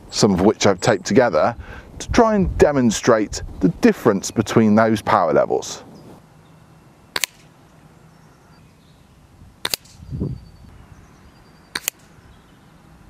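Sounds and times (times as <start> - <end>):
air rifle shots: 7.1 - 7.5, 9.6 - 10.0, 11.7 - 12.1.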